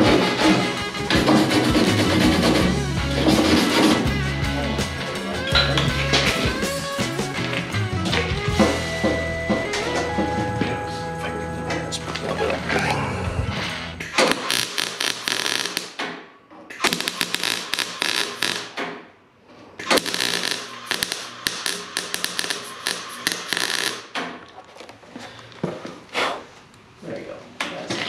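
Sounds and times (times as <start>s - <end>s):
welder arc crackling: 14.0s - 16.0s, 16.8s - 18.8s, 19.8s - 24.1s.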